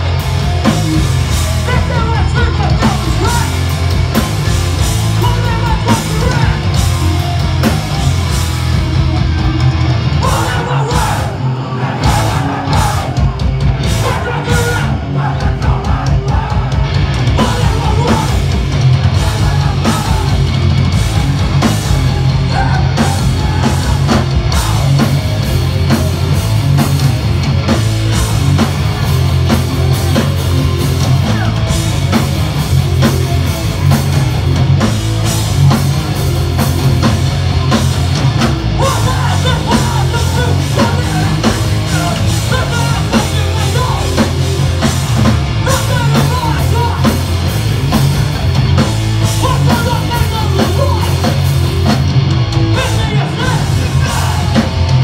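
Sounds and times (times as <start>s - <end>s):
punk band playing loud: 0.0s - 55.0s
shouted vocals: 9.0s - 25.2s, 31.0s - 31.8s, 38.7s - 44.4s, 52.7s - 55.0s.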